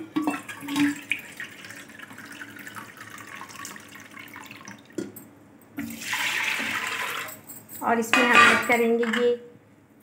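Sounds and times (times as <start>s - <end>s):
water pouring into metal bowl: 0.3s - 5.0s, 5.8s - 7.4s.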